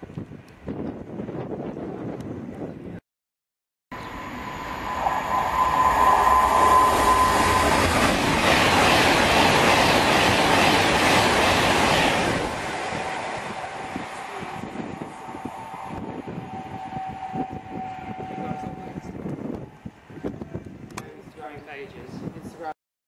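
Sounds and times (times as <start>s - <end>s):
electric train high tone: 3.9s - 20.0s
train wheels rushing on rail: 4.2s - 20.8s.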